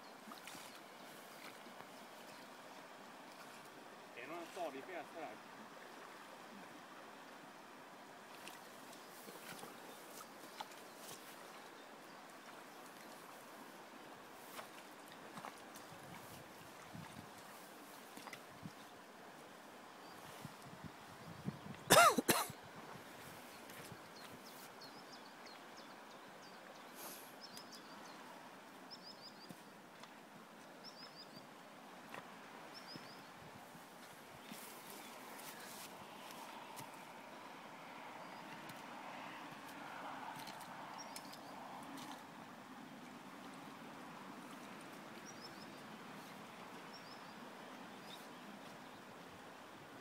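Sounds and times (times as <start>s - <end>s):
river flowing over stones: 0.0s - 21.1s, 22.2s - 50.0s
river rushing over stones: 31.5s - 50.0s.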